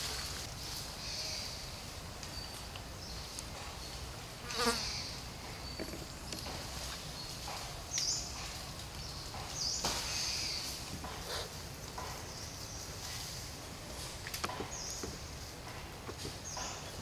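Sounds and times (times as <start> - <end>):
rustles and snaps in undergrowth: 0.0 - 1.4, 6.6 - 14.5
insects buzzing: 1.0 - 8.6.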